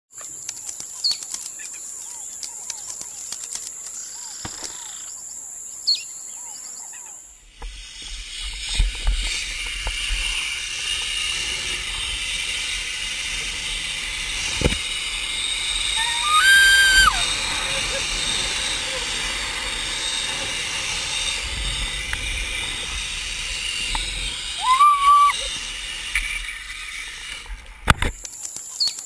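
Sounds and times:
small birds chirping: 0.2s - 8.0s, 14.9s - 25.5s, 28.2s - 29.0s
steady high-pitched whine: 0.2s - 29.0s
wind rumbling on microphone: 7.6s - 28.3s.

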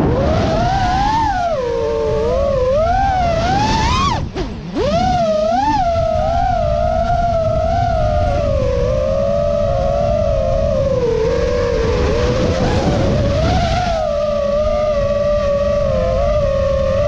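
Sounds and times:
quadcopter motors whining: 0.0s - 17.0s
rush of air: 11.3s - 14.1s.

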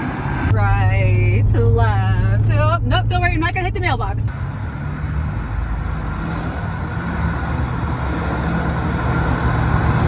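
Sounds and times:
car engine running: 0.0s - 10.0s
tyre and road noise: 0.0s - 10.0s.

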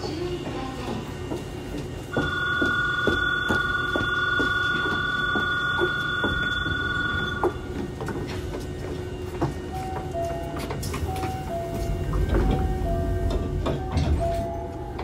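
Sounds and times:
low hum of stopped train: 0.0s - 15.0s
electric departure bell ringing: 2.1s - 7.6s.

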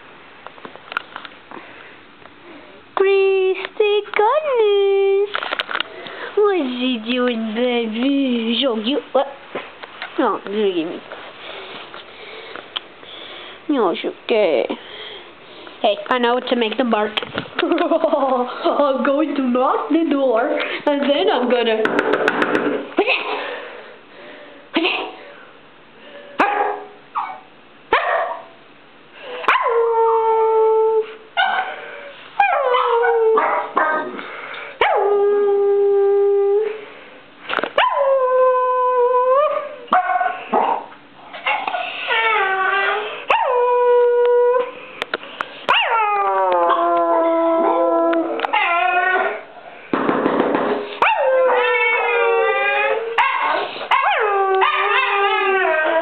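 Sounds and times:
small dogs howling: 29.5s - 34.2s, 37.8s - 40.8s, 41.4s - 44.8s, 45.7s - 49.6s, 51.0s - 56.0s
dog yips: 32.4s - 33.9s, 45.7s - 47.0s, 51.0s - 56.0s.

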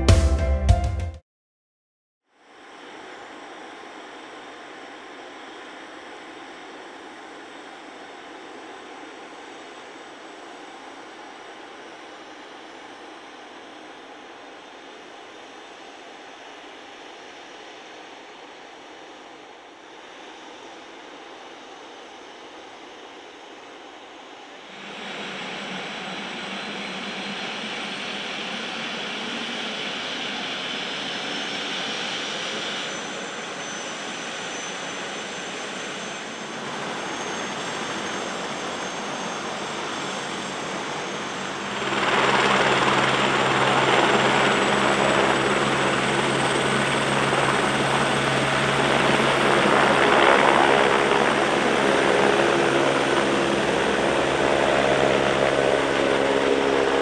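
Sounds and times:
helicopter turbine whine: 2.4s - 57.0s
helicopter rotor beat: 24.6s - 57.0s.

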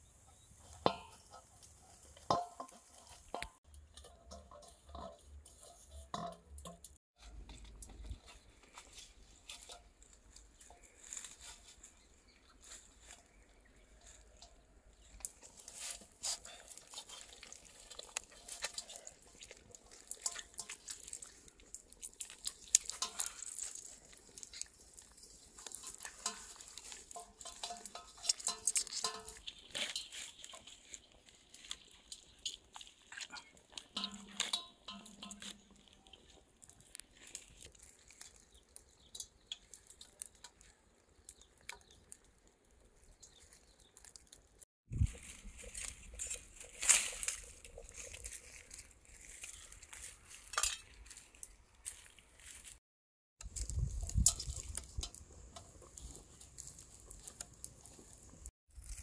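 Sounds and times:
kitchen utensils clicking and tapping: 0.7s - 11.8s, 13.9s - 36.3s.

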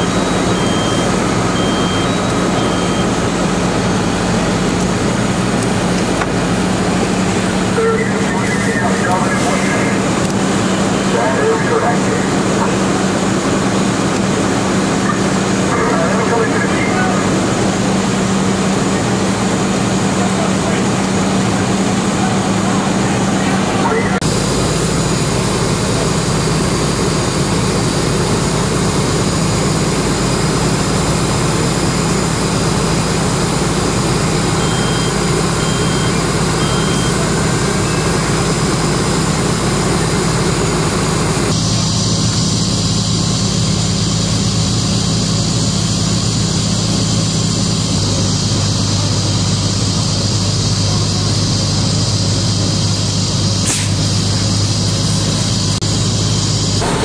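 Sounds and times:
fire engine engine drone: 0.0s - 57.0s
short high beeps: 34.6s - 38.2s.

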